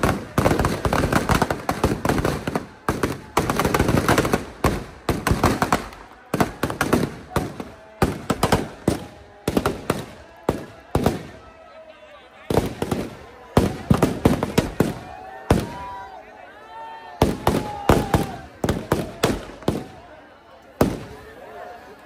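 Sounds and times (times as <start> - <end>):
firecrackers banging and crackling: 0.0 - 11.5, 12.4 - 16.0, 17.2 - 21.3.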